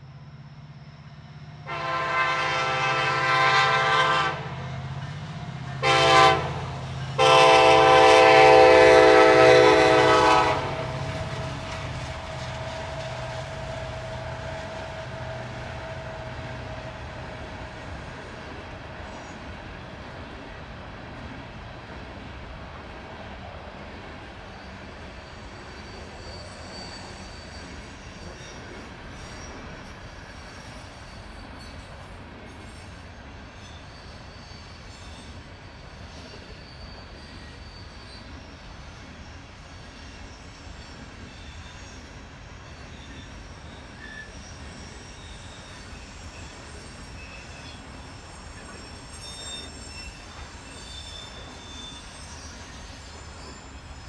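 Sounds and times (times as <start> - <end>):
diesel locomotive engine drone: 0.0 - 54.0
locomotive air horn blasts: 1.7 - 4.6, 5.8 - 11.0
wheels clacking on rail: 1.7 - 54.0.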